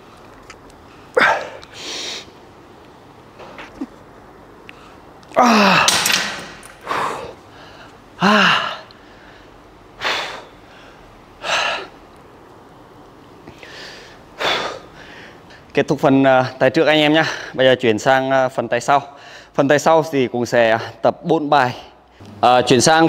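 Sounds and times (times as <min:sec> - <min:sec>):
man groaning: 0:05.4 - 0:05.9, 0:08.2 - 0:08.8
man breathing hard: 0:06.8 - 0:11.9, 0:13.5 - 0:15.6.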